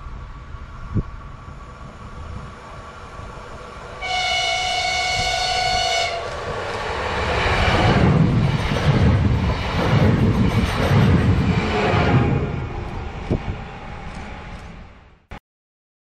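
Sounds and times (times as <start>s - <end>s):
train rumbling past: 0.0s - 15.3s
train horn chord: 4.0s - 6.4s.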